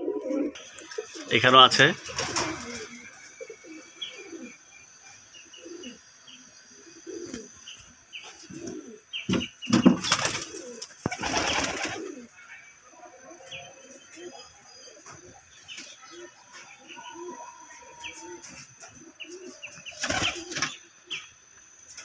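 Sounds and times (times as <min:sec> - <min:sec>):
pigeons cooing: 0:00.0 - 0:22.0
wing flapping: 0:00.3 - 0:03.3, 0:09.8 - 0:12.2, 0:19.4 - 0:20.8
small birds chirping: 0:00.4 - 0:22.0.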